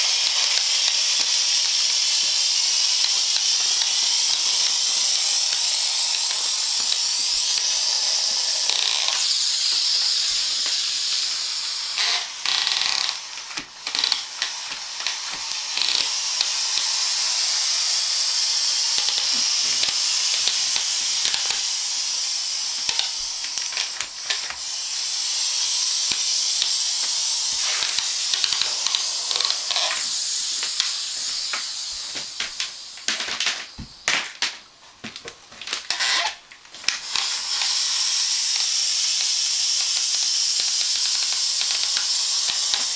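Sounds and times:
steam mop hissing: 0.0 - 42.9.

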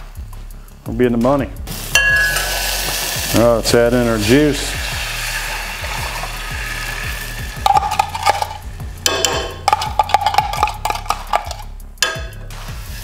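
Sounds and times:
sauce sizzling in a saucepan: 1.7 - 11.6, 12.2 - 13.0
metal spoon clinking and scraping: 2.0 - 2.7, 7.6 - 12.4.

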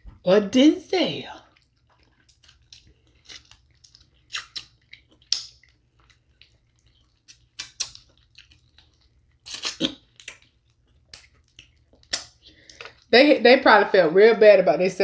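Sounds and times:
crab shells cracking: 1.6 - 13.1
wet mouth smacks and sucking: 1.6 - 13.1.

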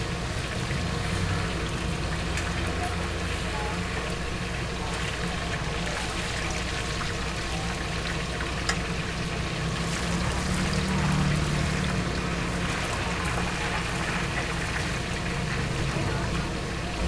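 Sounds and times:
oil bubbling and sizzling: 0.0 - 17.0.

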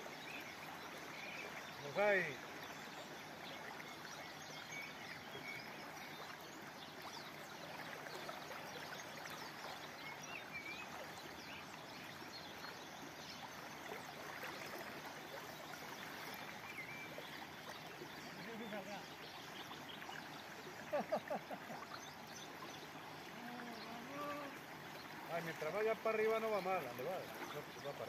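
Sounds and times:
river rushing over riffles: 22.8 - 27.9.

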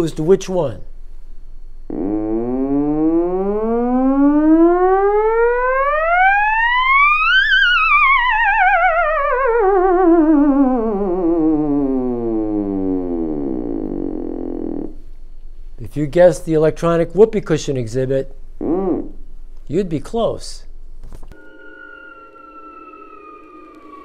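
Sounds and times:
theremin gliding tone: 1.8 - 15.0, 21.3 - 24.0.

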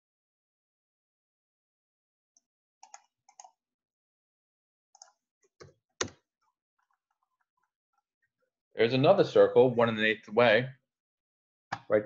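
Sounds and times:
keyboard and mouse clicks: 2.8 - 3.5.

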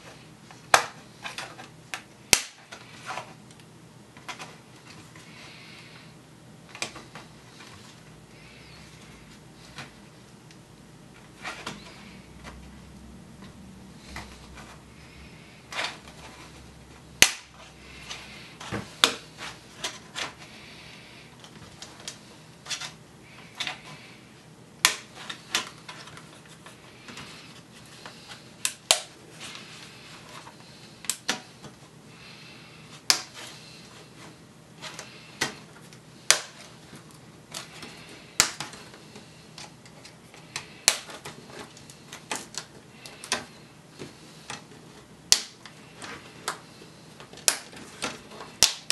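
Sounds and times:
plastic clips snapping: 38.4 - 38.8, 47.3 - 48.9.

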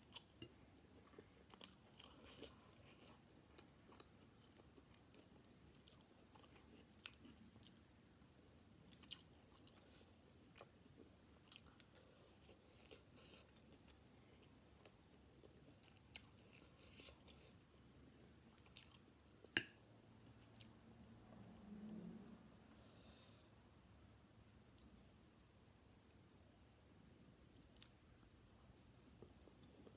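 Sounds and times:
person chewing noodles: 0.0 - 8.1, 8.8 - 19.6.

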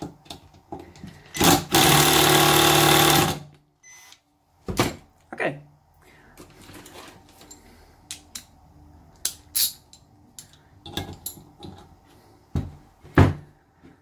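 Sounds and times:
metal tools clinking: 9.2 - 11.8
heavy thumps on workbench: 12.5 - 13.5.

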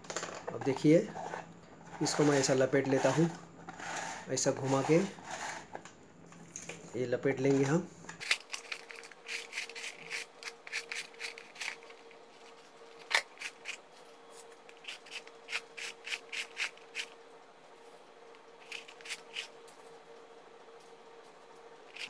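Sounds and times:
cord scraping on plastic reel: 0.5 - 5.8.

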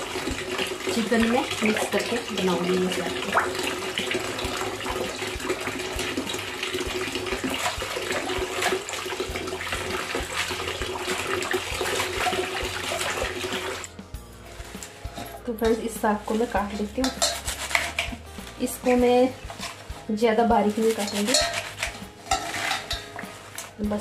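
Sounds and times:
small splashes and clicks: 0.0 - 13.9
tap water running into basin: 0.0 - 24.0.

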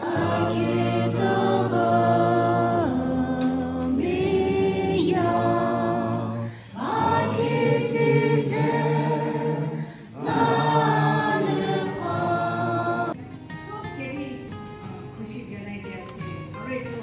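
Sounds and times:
congregation singing a hymn: 0.0 - 13.2.

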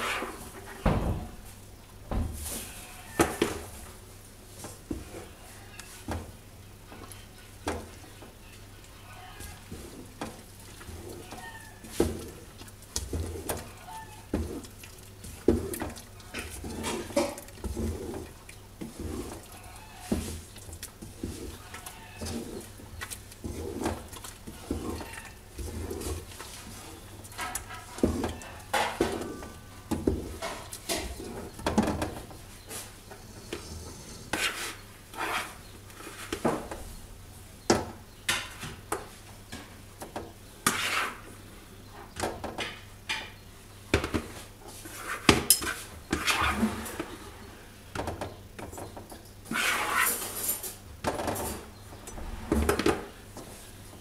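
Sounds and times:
wooden spoon stirring thick mix: 2.5 - 33.7, 34.3 - 36.8, 40.0 - 41.6, 43.7 - 47.6, 48.2 - 50.3.

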